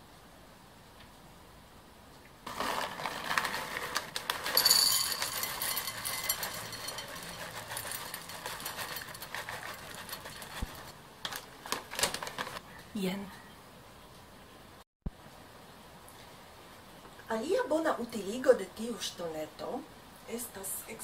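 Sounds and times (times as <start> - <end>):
kibble rattling into a bowl: 2.5 - 12.6.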